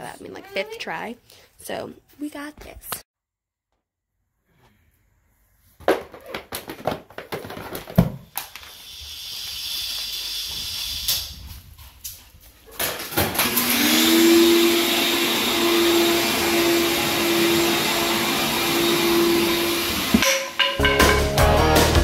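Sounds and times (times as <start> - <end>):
vacuum cleaner running: 13.1 - 20.4.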